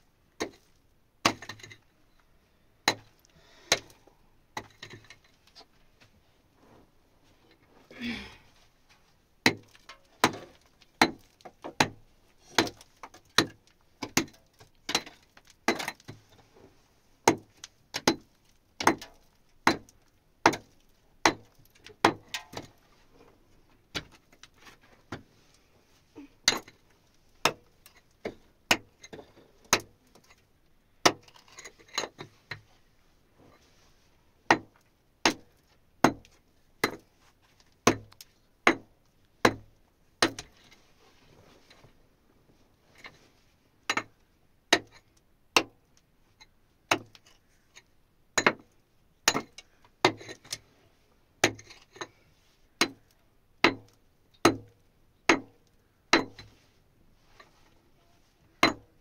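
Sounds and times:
hand tool striking hard material: 9.4 - 16.1, 17.2 - 22.7, 58.6 - 58.8.

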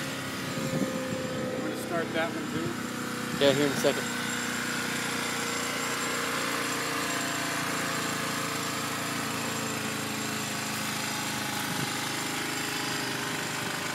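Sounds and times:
scooter engine idling: 0.0 - 13.9.

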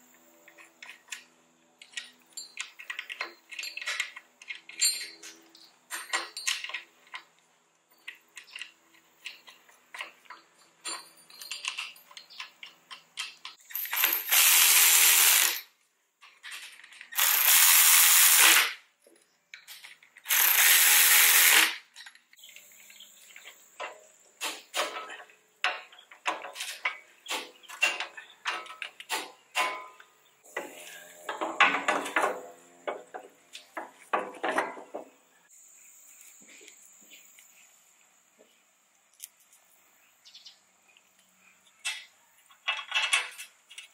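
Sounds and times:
metallic clicking of hand tools: 8.0 - 14.4
power tool running nuts down: 13.7 - 15.7, 17.2 - 18.8, 20.3 - 21.8.

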